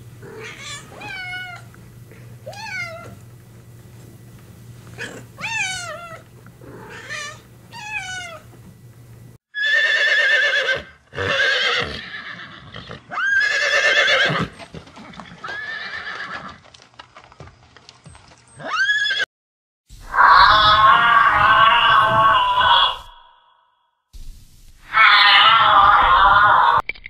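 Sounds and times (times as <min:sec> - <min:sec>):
cat meowing: 0:00.2 - 0:01.7, 0:02.4 - 0:03.2, 0:05.0 - 0:08.5, 0:20.2 - 0:23.1, 0:24.9 - 0:26.8
horses neighing: 0:09.6 - 0:16.6, 0:20.1 - 0:23.2.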